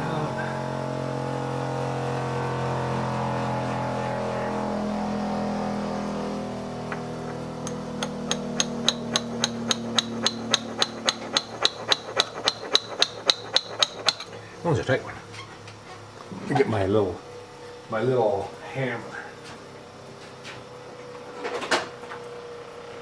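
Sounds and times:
steady hum: 0.0s - 20.9s
hammer tapping metal spoke: 7.6s - 14.3s.

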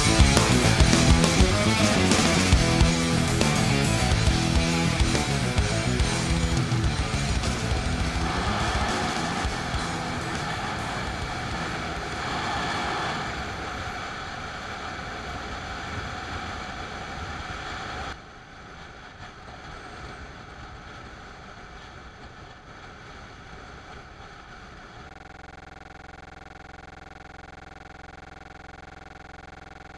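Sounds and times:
motorcycle road noise: 0.0s - 25.1s
faint steady tone: 25.0s - 29.9s.

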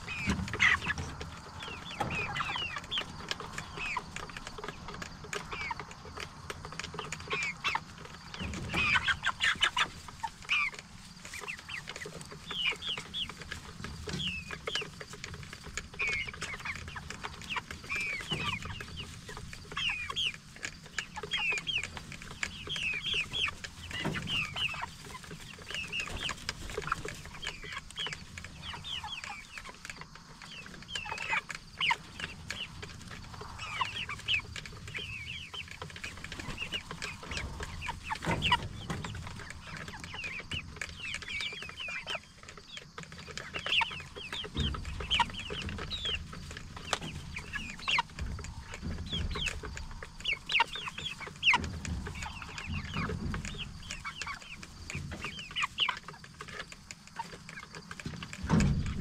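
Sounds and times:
chickens peeping and clucking: 0.0s - 59.0s.

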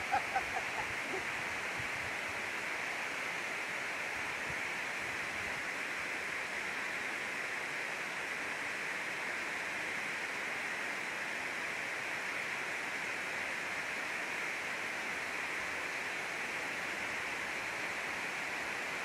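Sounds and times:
water rushing over spillway: 0.0s - 19.0s.

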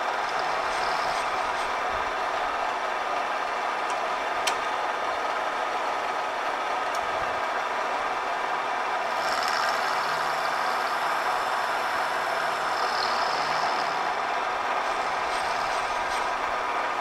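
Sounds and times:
milling machine cutting metal: 0.0s - 2.7s, 9.1s - 17.0s
faint high whine: 9.0s - 17.0s.

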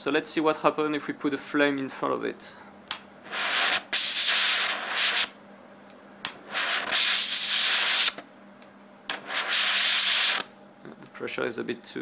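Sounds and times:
gas torch hissing in bursts: 3.2s - 5.4s, 6.4s - 8.2s, 9.1s - 10.5s.

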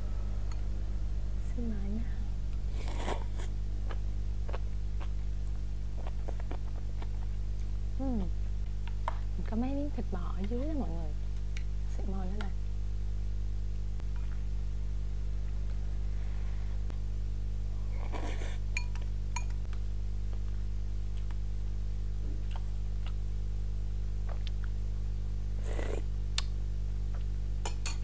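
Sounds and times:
steady low hum: 0.0s - 28.0s
slurping: 2.7s - 3.5s.

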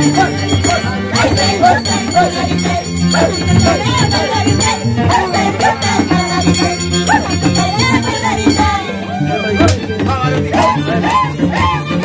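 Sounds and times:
low bass line: 0.0s - 9.0s
violin melody: 0.0s - 12.0s.

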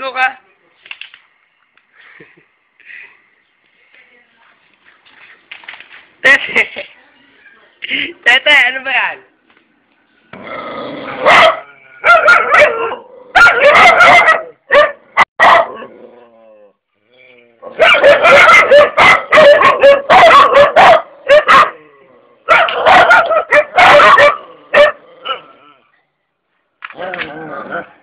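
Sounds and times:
dog barking and yipping: 11.2s - 15.9s, 17.7s - 21.8s, 22.4s - 25.5s.

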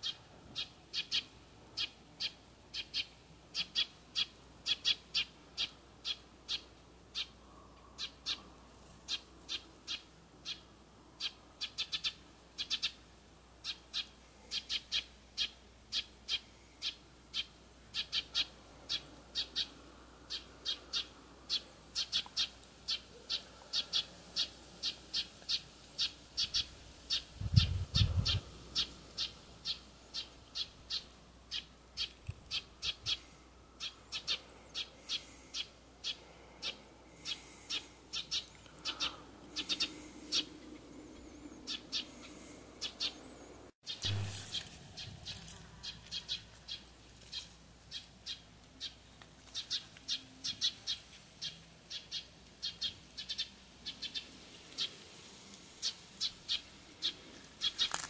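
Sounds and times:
bird chirping: 13.6s - 54.9s.

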